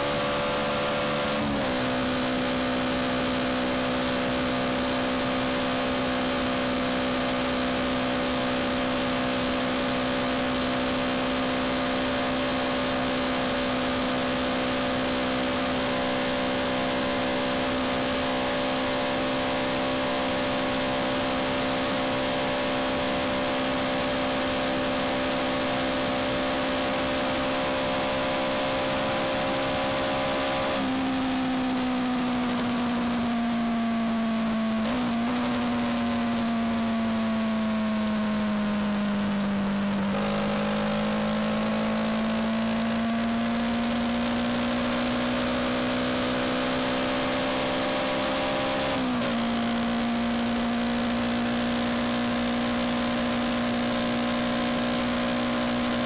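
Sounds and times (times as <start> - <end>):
wind and road rush: 0.0 - 31.7
motorcycle engine running: 0.0 - 56.0.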